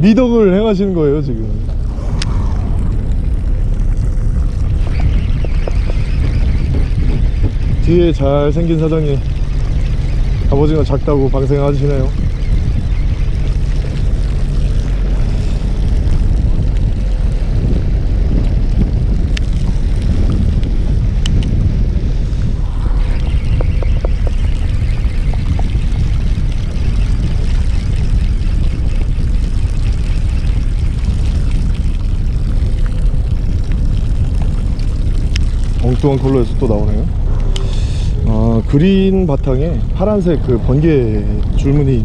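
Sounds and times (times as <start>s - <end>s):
boat engine droning: 0.0s - 42.0s
faint clicks: 19.3s - 21.6s, 35.2s - 36.4s.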